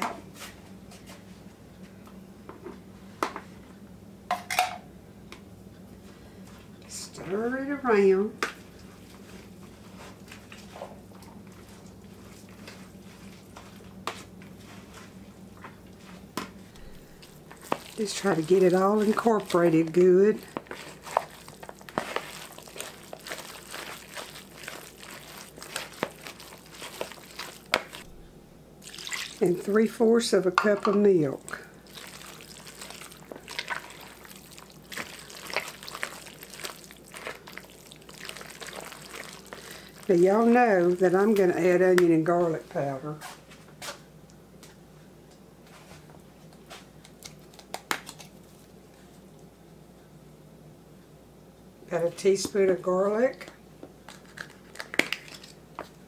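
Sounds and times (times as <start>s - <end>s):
masher squishing food: 15.8s - 28.2s, 28.8s - 29.8s, 30.6s - 42.1s, 46.6s - 49.3s, 53.3s - 56.0s.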